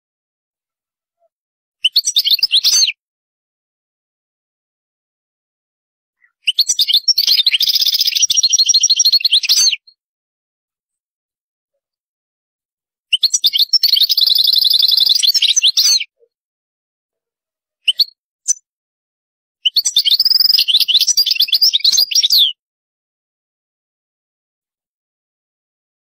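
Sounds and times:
goldfinch twittering song: 1.8 - 3.0, 6.2 - 10.0, 13.1 - 16.2, 19.6 - 22.6.

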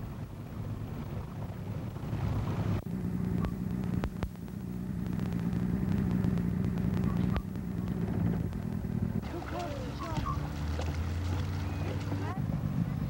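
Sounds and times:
engine running: 0.0 - 13.0
faint clicks: 2.8 - 12.2.

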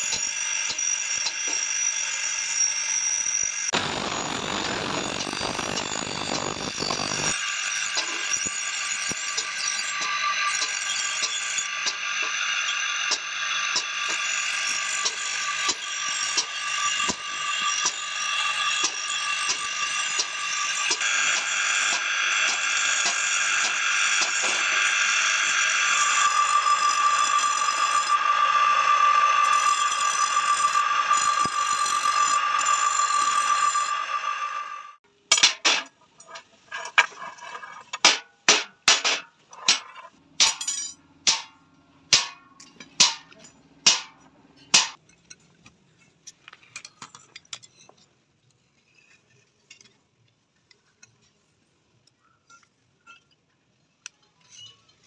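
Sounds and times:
bench grinder grinding steel: 0.0 - 35.0.

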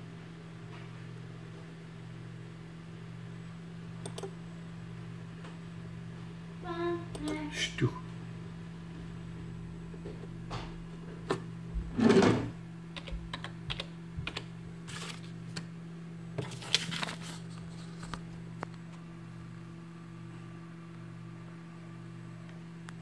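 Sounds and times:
steady low hum: 0.0 - 23.0
keyboard keys tapping: 13.0 - 14.5.

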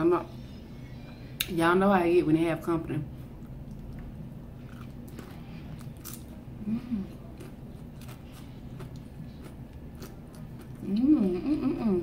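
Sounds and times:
person humming: 10.8 - 12.0.

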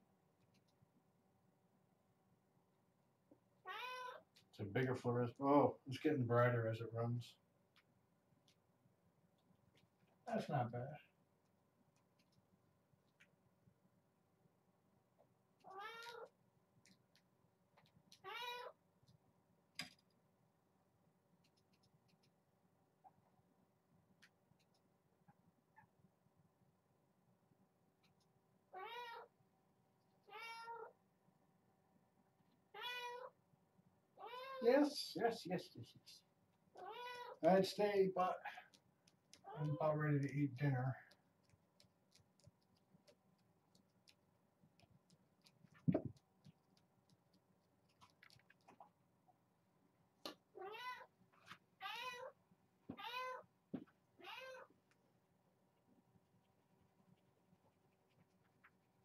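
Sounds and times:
kitten meowing: 3.7 - 4.2, 15.7 - 16.3, 18.2 - 18.7, 28.8 - 29.3, 30.3 - 30.9, 32.8 - 33.3, 34.2 - 34.6, 36.8 - 37.4, 50.6 - 51.1, 51.8 - 52.3, 52.9 - 53.4, 54.2 - 54.7.

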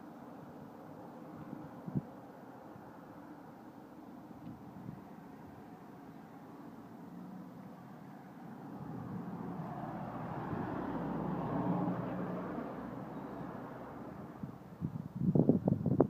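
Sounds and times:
car passing by: 5.1 - 14.7.

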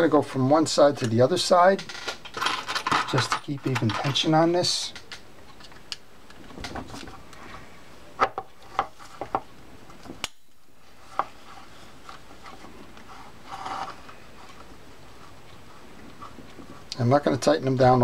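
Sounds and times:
rubbing scrape: 11.0 - 16.9.

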